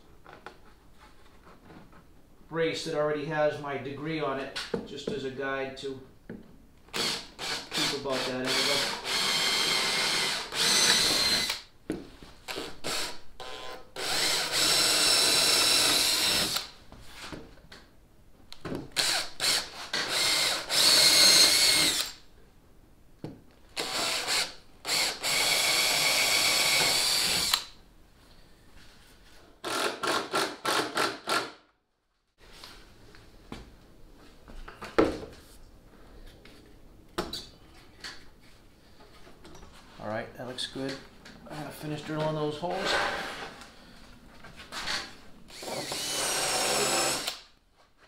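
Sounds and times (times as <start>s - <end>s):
cordless drill whining: 6.9s - 11.7s, 12.5s - 16.7s, 19.0s - 22.2s, 23.8s - 27.8s, 45.5s - 47.5s.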